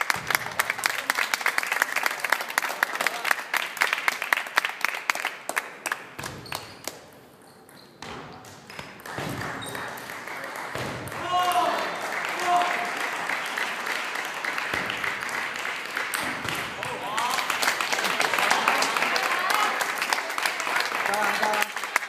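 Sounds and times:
spectators clapping: 0.0s - 7.0s, 8.6s - 22.0s.

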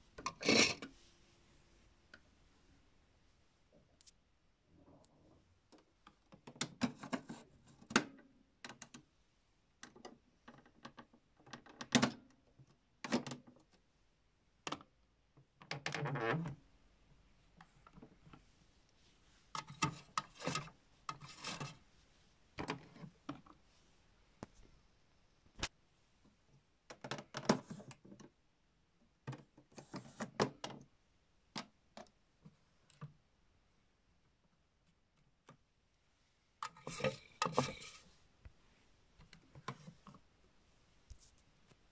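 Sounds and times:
plastic clicks and knocks: 26.9s - 28.3s, 29.2s - 30.9s.

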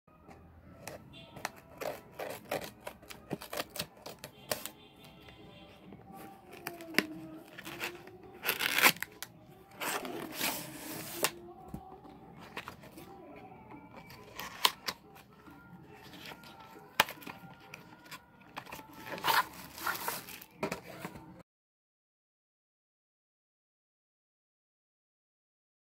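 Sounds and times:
background music: 0.1s - 21.4s
cardboard box ripping: 1.7s - 4.7s, 6.5s - 11.3s, 18.0s - 21.0s.

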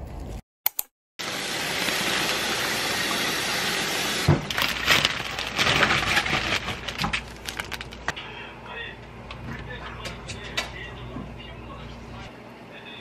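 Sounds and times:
plastic bag crinkling: 4.4s - 8.2s.

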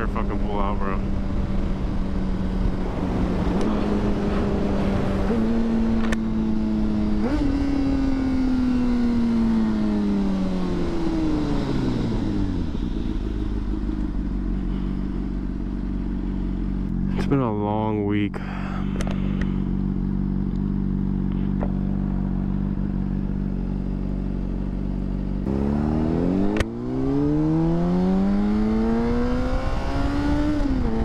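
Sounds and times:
motorcycle engine downshifting: 1.0s - 17.4s
motorcycle engine idling: 10.5s - 25.5s.

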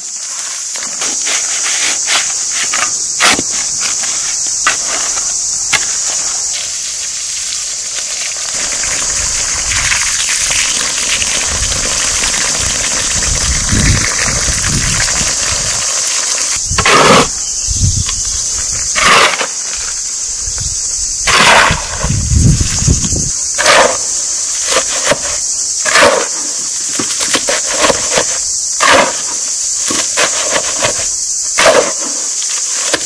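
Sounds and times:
metal hoe scraping wet mud: 0.7s - 6.2s, 15.8s - 17.4s, 18.9s - 20.0s, 21.2s - 22.1s, 23.6s - 33.0s.

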